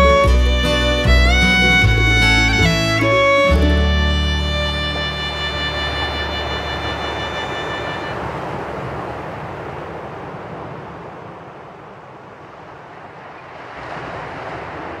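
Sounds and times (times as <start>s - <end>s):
sea waves rushing: 0.0s - 15.0s.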